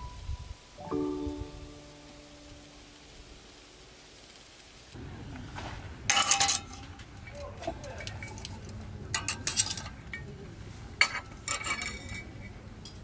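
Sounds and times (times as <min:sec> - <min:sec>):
metal cups clinking on hooks: 0:06.1 - 0:10.3, 0:11.0 - 0:13.0.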